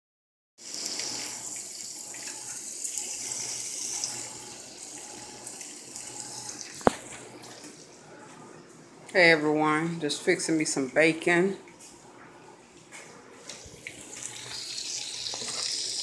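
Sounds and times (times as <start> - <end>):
bacon sizzling on a griddle: 14.2 - 16.0.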